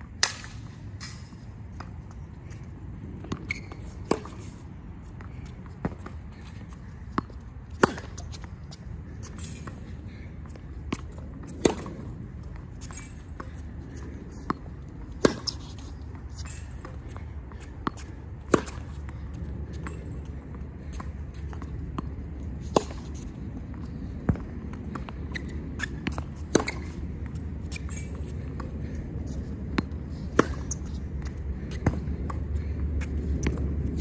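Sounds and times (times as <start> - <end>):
steady low rumble: 0.0 - 34.0
racket hitting tennis ball: 0.1 - 2.0, 3.3 - 9.9, 10.9 - 20.1, 21.1 - 23.3, 24.2 - 27.1, 27.7 - 34.0
tennis ball bouncing on hard court: 3.2 - 4.5, 7.1 - 9.8, 10.9 - 28.8, 29.4 - 32.4.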